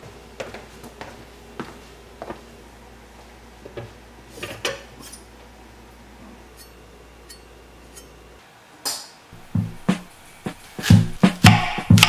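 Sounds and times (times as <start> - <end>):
knife metallic scrape and clink: 4.4 - 5.3, 6.5 - 8.2.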